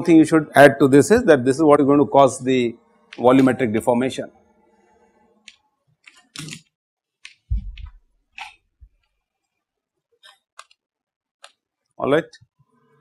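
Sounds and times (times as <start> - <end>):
deep thump: 7.5 - 7.9.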